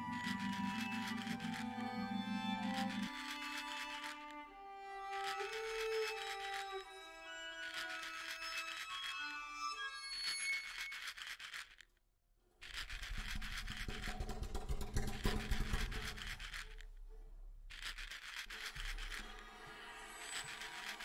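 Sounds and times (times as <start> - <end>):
dried beans clicking and rattling: 0.2 - 1.8, 2.7 - 4.4, 5.0 - 6.8, 7.5 - 9.2, 10.3 - 12.0, 12.6 - 19.4, 20.4 - 21.0.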